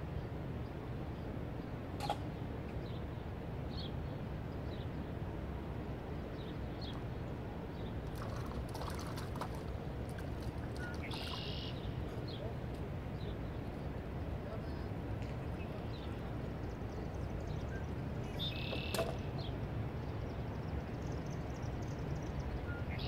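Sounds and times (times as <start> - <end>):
small bird chirping: 10.8 - 11.9, 18.4 - 19.2.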